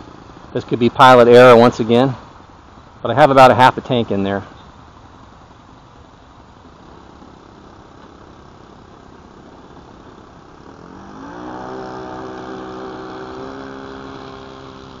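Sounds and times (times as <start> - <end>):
low steady noise: 0.0 - 15.0
model plane engine revving: 6.8 - 15.0.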